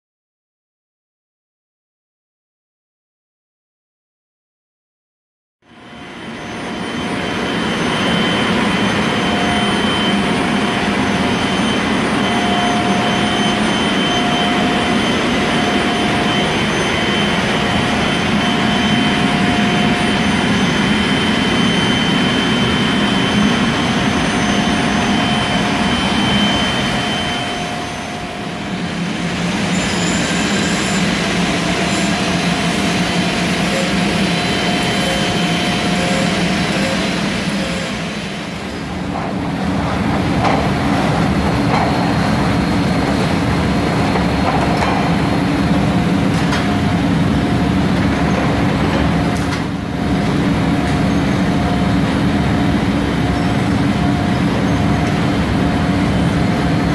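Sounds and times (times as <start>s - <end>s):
high whistling tones: 5.9s - 38.1s.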